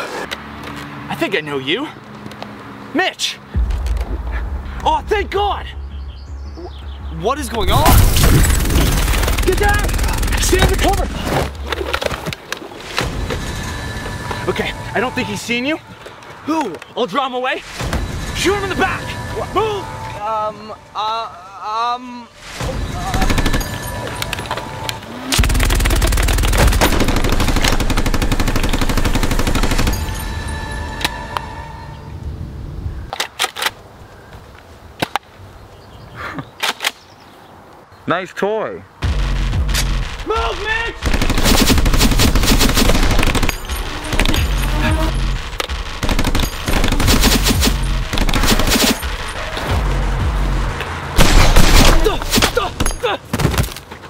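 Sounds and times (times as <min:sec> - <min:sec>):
action music with heavy bass: 0:03.6 - 0:11.7, 0:39.0 - 0:52.8
rapid gunfire bursts: 0:08.0 - 0:11.1, 0:25.4 - 0:30.0, 0:41.0 - 0:49.5.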